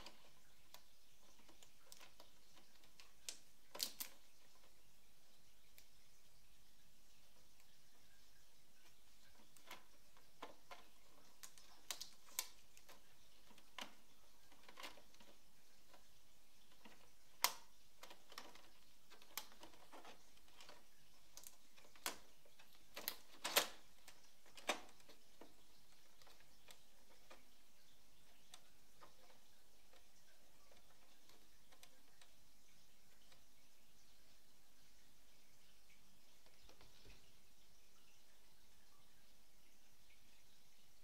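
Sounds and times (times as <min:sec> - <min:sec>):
plastic clicks and knocks: 0:00.0 - 0:04.8, 0:08.9 - 0:32.4, 0:36.4 - 0:37.3.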